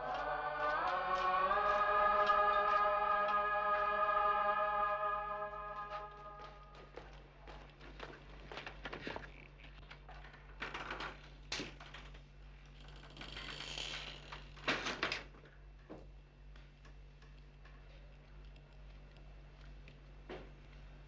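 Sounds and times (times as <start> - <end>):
footsteps on hard floor: 0.0 - 4.0, 5.4 - 8.7
steady low hum: 0.0 - 10.4.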